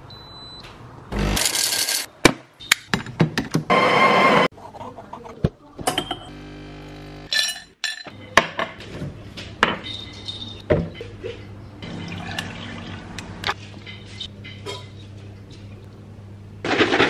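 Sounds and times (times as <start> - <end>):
espresso machine pump buzzing: 6.3 - 7.3
liquid being poured: 11.9 - 13.3.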